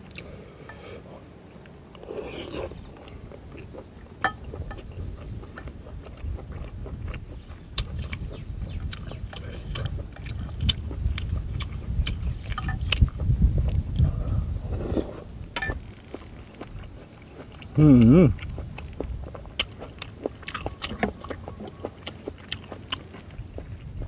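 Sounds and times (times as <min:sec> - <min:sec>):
chewing and slurping: 0:00.1 - 0:24.0
wind rumbling on microphone: 0:02.6 - 0:17.0, 0:17.7 - 0:19.9, 0:23.3 - 0:24.0.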